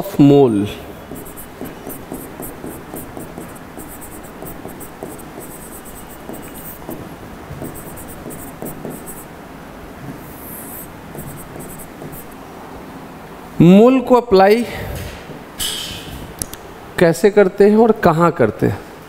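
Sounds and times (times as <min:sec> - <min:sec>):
stylus scratching and tapping screen: 0:01.1 - 0:07.0, 0:07.6 - 0:09.3, 0:10.2 - 0:12.4.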